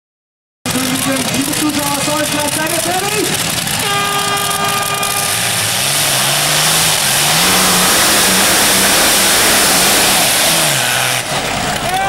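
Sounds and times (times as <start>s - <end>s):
tractor engine at full power: 0.7s - 12.0s
steady horn tone: 3.8s - 11.2s.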